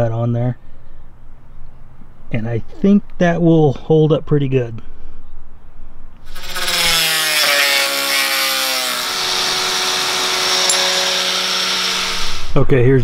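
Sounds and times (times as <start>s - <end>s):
angle grinder cutting steel: 6.3s - 12.5s.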